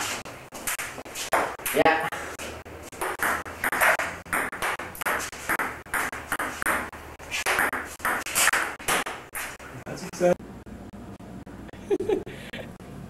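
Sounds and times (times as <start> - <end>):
ball bouncing on table: 3.0 - 6.9, 7.5 - 9.2
ping-pong ball on paddles: 3.0 - 9.2.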